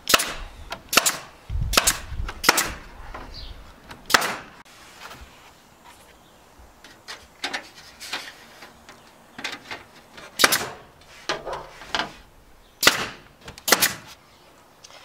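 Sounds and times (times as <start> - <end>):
staple gun firing: 0.0 - 2.8, 4.1 - 4.5, 10.4 - 10.8, 12.8 - 14.1.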